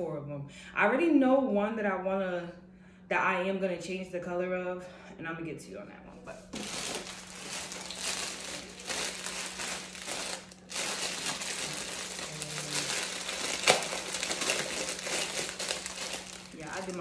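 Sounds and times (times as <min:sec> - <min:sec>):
plastic bag crinkling: 0:06.5 - 0:17.0.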